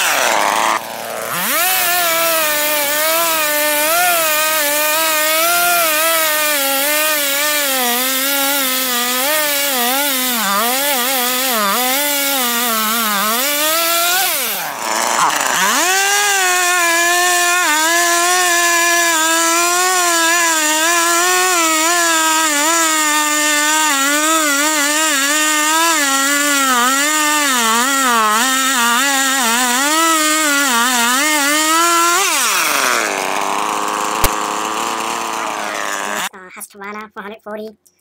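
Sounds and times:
chainsaw cutting log: 0.0 - 36.3
sharp click: 34.2 - 34.4.

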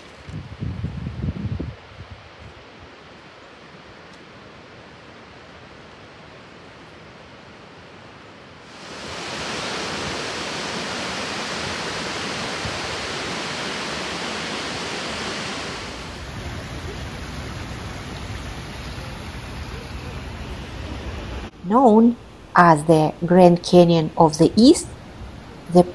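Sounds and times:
waterfall rushing: 8.6 - 21.6.

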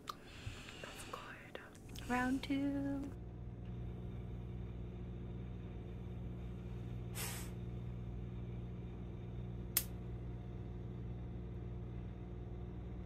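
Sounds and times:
gas stove burner hum: 0.0 - 13.0
short hiss: 7.1 - 7.6
sharp click: 9.7 - 10.0.

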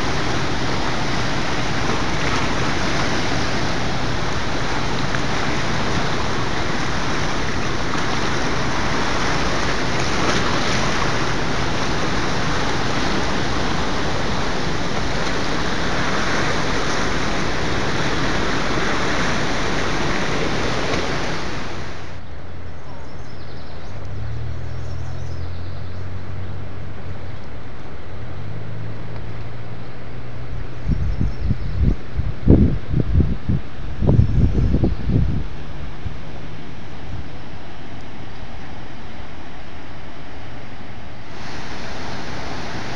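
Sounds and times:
water rushing through rapids: 0.0 - 22.2, 41.1 - 42.9.

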